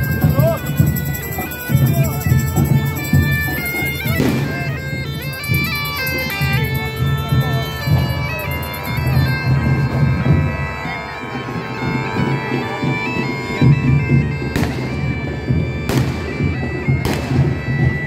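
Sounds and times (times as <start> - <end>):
bagpipes playing a tune: 0.0 - 18.0.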